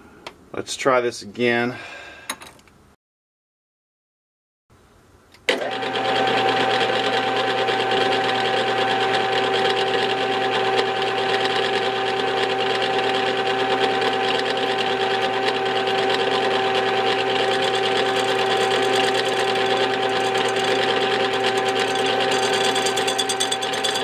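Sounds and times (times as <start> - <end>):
lathe running with gear whine: 5.6 - 24.0.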